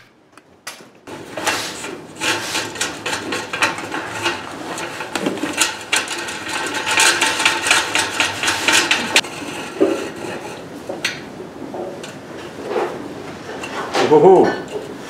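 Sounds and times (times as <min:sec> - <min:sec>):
copper scraping against steel: 0:01.1 - 0:11.2.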